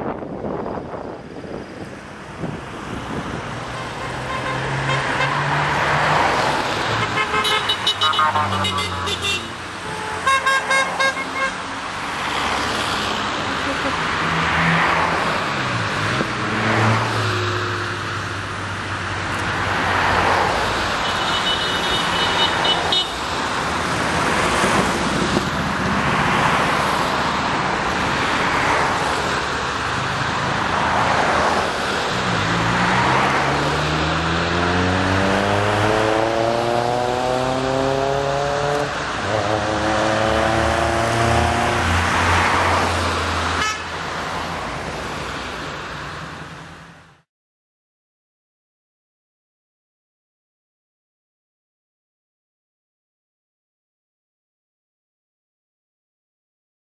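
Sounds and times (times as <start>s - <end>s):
cars driving past: 0.0s - 47.0s
car horn: 3.8s - 5.6s, 6.9s - 11.7s, 13.4s - 14.2s, 21.0s - 23.2s, 43.5s - 44.0s.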